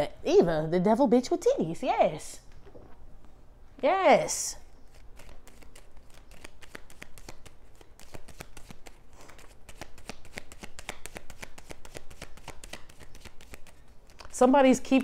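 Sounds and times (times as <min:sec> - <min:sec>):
cards being shuffled: 0:04.8 - 0:14.5.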